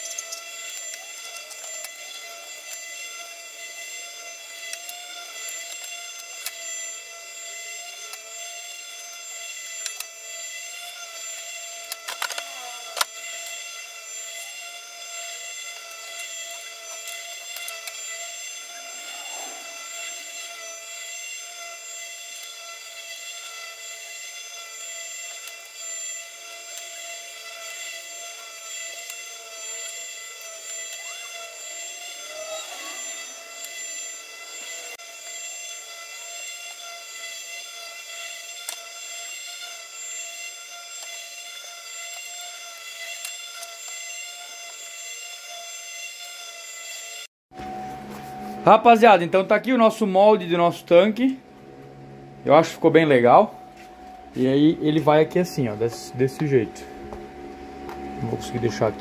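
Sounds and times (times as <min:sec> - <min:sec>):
high-pitched whine: 0:10.8 - 0:22.6, 0:27.0 - 0:36.5, 0:46.9 - 0:59.0.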